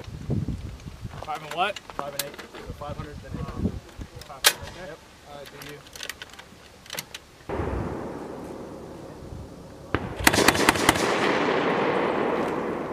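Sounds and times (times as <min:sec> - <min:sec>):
dull boom rolling away: 0:07.5 - 0:12.9
rapid sharp bangs with echo: 0:09.9 - 0:12.9.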